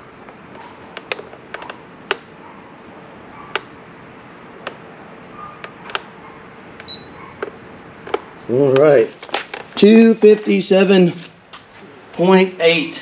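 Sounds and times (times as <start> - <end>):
steady faint hum: 0.0 - 13.0
sharp knocks and clicks: 0.2 - 2.3, 3.5 - 3.7, 5.4 - 6.2, 6.8 - 10.6.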